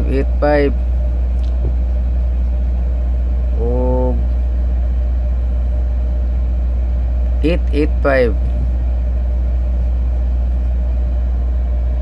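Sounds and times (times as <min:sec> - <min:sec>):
loud low hum: 0:00.0 - 0:12.0
short held voice: 0:03.6 - 0:04.3.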